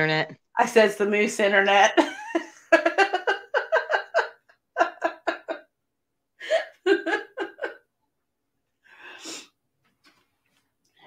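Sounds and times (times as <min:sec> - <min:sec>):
woman laughing hard: 0:02.0 - 0:05.7, 0:06.4 - 0:07.9.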